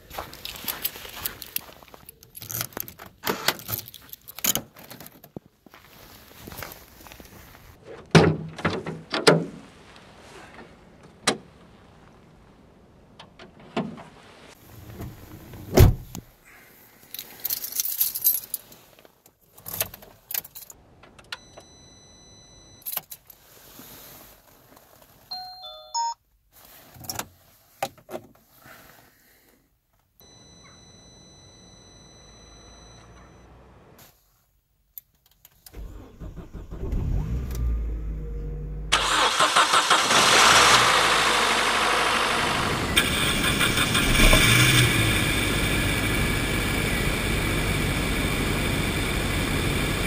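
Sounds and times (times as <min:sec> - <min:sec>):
rustling: 0:00.0 - 0:08.1, 0:13.6 - 0:20.8, 0:23.1 - 0:25.4, 0:26.5 - 0:29.7
car keys jangling: 0:00.4 - 0:05.3, 0:17.1 - 0:18.9, 0:19.5 - 0:20.8
car door shutting: 0:14.8 - 0:16.2.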